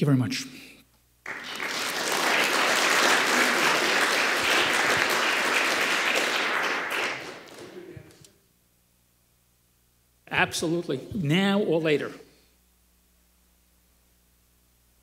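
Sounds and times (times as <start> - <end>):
audience applauding: 1.2 - 8.2.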